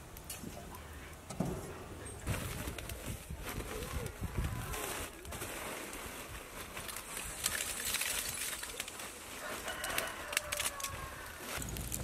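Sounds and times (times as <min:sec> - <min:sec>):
charcoal clattering: 0:02.2 - 0:12.0.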